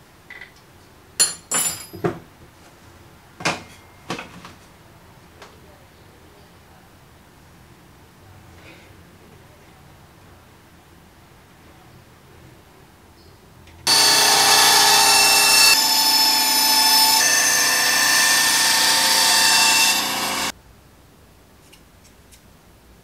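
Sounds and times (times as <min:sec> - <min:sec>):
band saw running: 0:13.9 - 0:20.5
saw cutting whine: 0:13.9 - 0:20.5.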